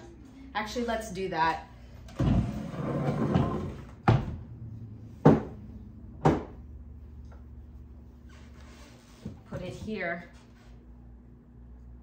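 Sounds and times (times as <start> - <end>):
objects knocking on hard surface: 5.2 - 5.6, 6.2 - 6.6.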